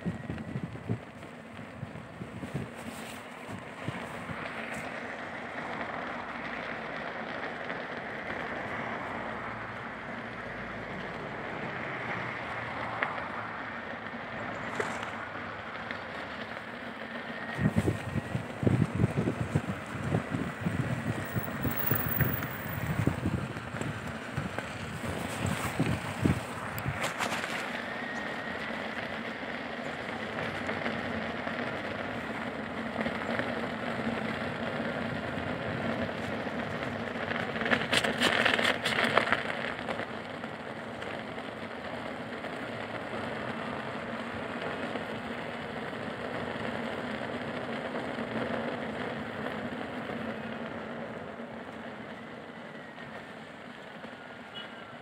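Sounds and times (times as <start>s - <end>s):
snow crackling: 0.0s - 54.0s
wheel rolling over snow: 0.0s - 54.2s
faint electric motor whine: 7.7s - 37.1s.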